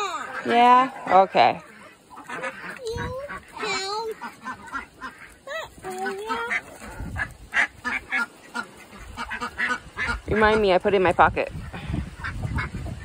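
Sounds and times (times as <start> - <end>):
young child's wordless voice: 0.0 - 0.4, 2.3 - 4.6, 5.4 - 7.0
ducks quacking: 0.0 - 13.0.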